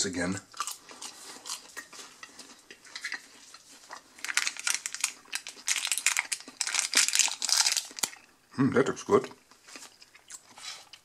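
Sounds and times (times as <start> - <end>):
foil lid crinkling as peeled: 4.2 - 8.2.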